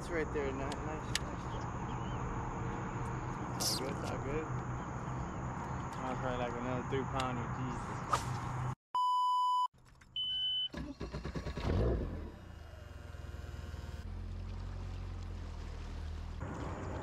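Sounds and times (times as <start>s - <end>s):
electronic censor beep: 9.0s - 10.8s
motor humming low: 12.0s - 17.0s.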